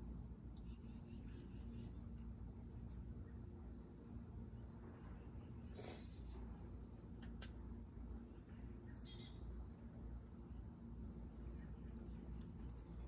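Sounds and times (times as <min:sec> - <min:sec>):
faint bird chirps: 0:00.0 - 0:02.2, 0:05.0 - 0:10.0
low background rumble: 0:00.0 - 0:13.0.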